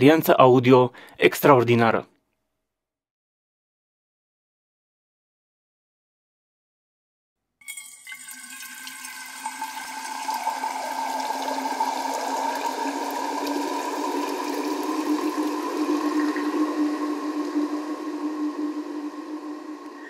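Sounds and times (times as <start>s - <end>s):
water pouring into metal flask: 7.6s - 20.0s.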